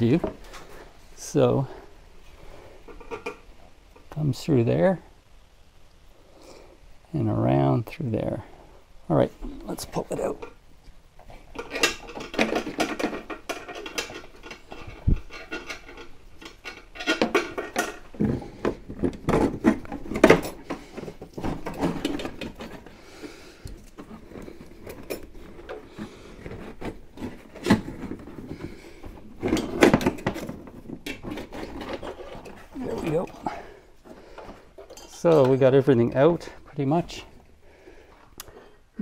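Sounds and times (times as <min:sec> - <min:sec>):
metal brake line scraping and clinking: 0:34.4 - 0:37.2.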